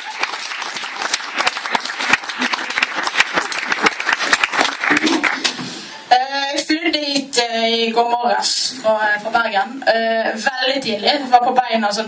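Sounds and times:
audience applauding: 0.0 - 5.7.

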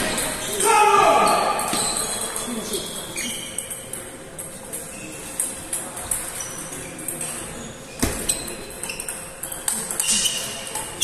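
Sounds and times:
table tennis balls clicking: 1.5 - 11.0.

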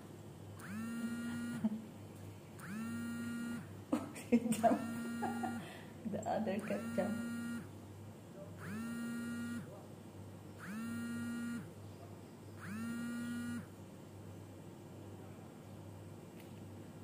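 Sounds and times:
phone vibration buzzing: 0.6 - 1.8, 2.6 - 3.8, 4.7 - 5.6, 6.6 - 7.8, 8.6 - 9.7, 10.6 - 11.8, 12.6 - 13.8.

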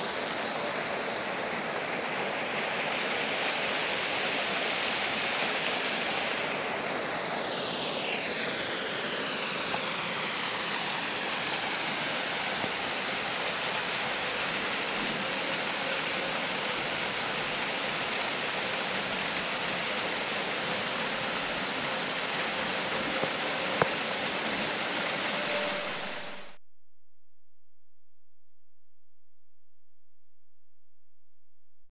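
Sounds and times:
water rushing over waterfall: 0.0 - 26.5.

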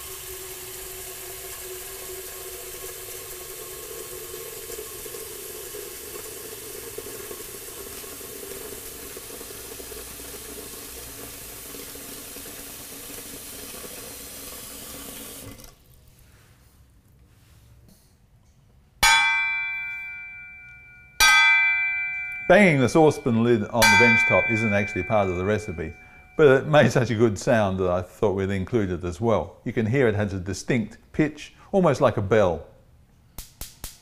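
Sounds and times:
tap water filling metal saucepan: 0.0 - 16.0, 19.0 - 27.0.

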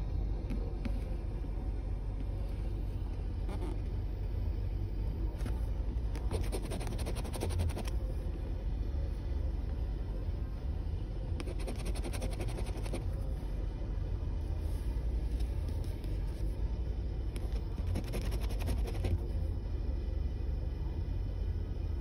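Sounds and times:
low rumble inside car: 0.0 - 22.0
coin scratching lottery ticket: 6.3 - 7.9, 11.4 - 13.0, 17.8 - 19.2.

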